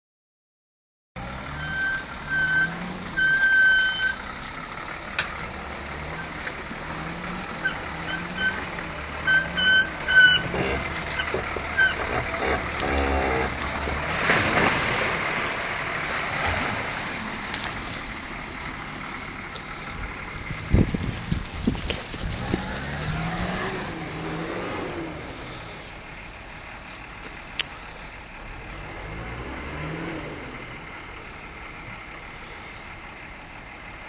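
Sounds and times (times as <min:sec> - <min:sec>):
off-road vehicle engine revving: 0:01.2 - 0:33.0
branches scraping: 0:06.4 - 0:18.2, 0:20.4 - 0:24.3.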